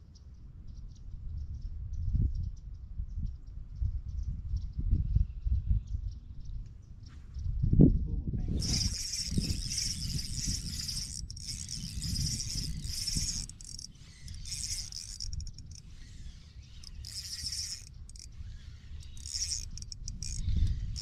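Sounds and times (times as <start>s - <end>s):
spinning reel cranking: 8.6s - 21.0s.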